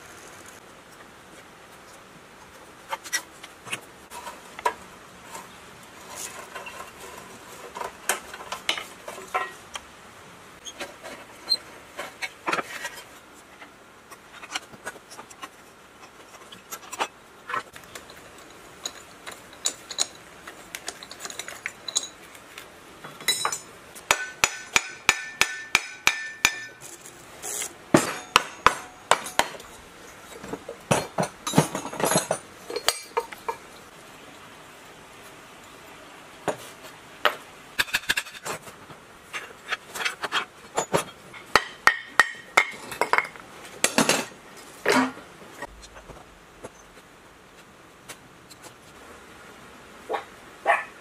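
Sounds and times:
metal parts clinking and knocking: 17.8s - 22.6s, 23.2s - 27.0s, 28.0s - 33.7s.

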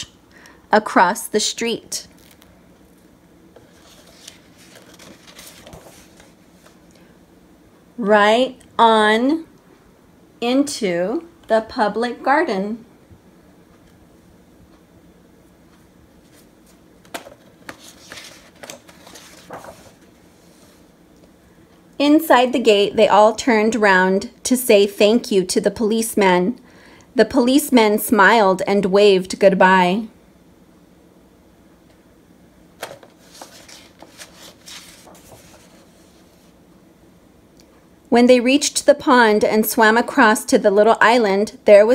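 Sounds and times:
book page turning: 2.1s - 6.9s, 15.7s - 20.9s, 32.8s - 36.6s.

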